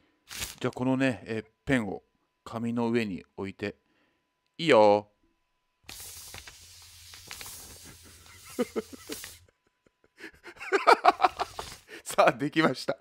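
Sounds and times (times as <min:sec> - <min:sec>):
felt-tip pen scratching on paper: 0:05.9 - 0:09.4.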